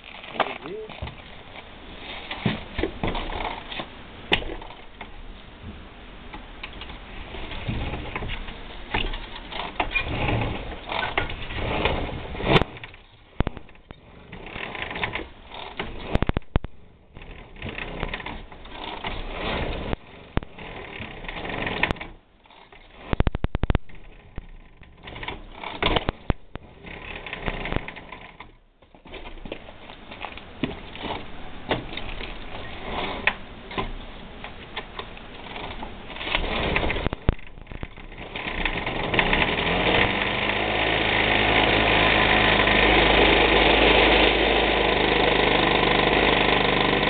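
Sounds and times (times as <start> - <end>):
moped engine clatter: 35.5 - 47.0.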